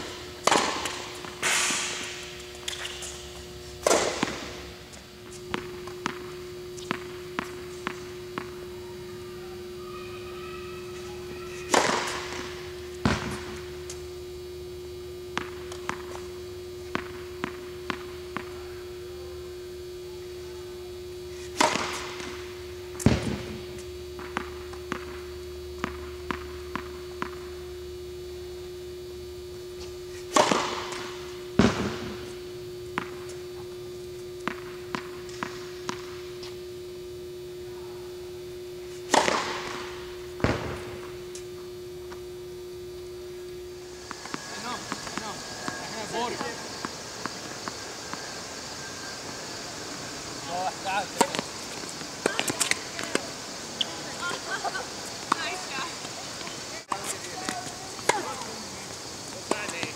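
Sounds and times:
steady hum: 0.0s - 59.9s
tennis ball bouncing on court: 0.4s - 1.7s, 3.8s - 4.7s, 5.3s - 8.8s, 11.4s - 14.0s, 15.3s - 16.2s, 16.8s - 18.6s, 21.5s - 27.6s, 30.3s - 33.4s, 34.4s - 36.5s, 39.0s - 41.4s, 43.9s - 48.4s, 51.2s - 53.3s, 55.2s - 55.7s, 59.4s - 59.9s
racket striking tennis ball: 0.4s - 3.2s, 3.8s - 4.7s, 5.4s - 8.6s, 11.4s - 13.6s, 21.4s - 22.4s, 24.2s - 25.2s, 30.2s - 32.2s, 34.4s - 36.2s, 38.9s - 41.0s, 43.9s - 48.3s, 51.2s - 53.4s
loud thump: 23.1s - 23.6s, 31.6s - 32.2s.

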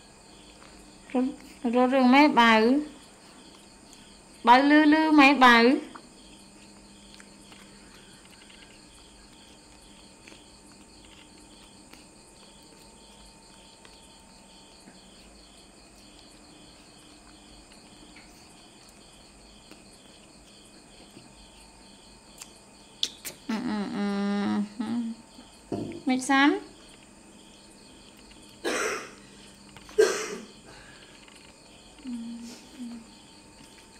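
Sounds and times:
cricket chirping: 0.0s - 33.9s.

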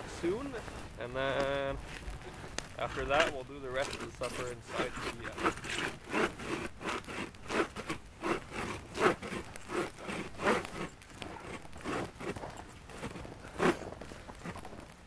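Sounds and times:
hand saw cutting wood: 2.9s - 14.7s.

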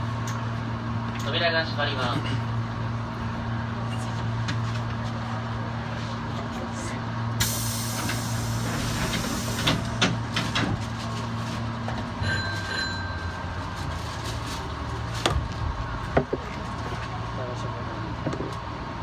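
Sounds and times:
train equipment hum: 0.0s - 19.0s
air hiss of train doors: 7.4s - 10.7s.

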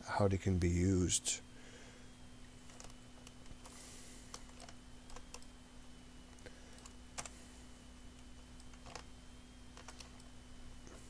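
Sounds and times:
low electrical hum: 0.0s - 11.0s
computer mouse clicks: 2.7s - 5.5s, 6.7s - 7.3s, 8.2s - 9.1s, 9.8s - 10.3s.

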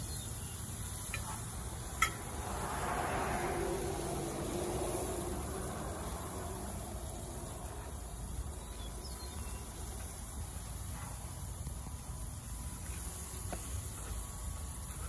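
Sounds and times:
low outdoor rumble: 0.8s - 15.0s
vehicle passing: 1.3s - 10.8s.

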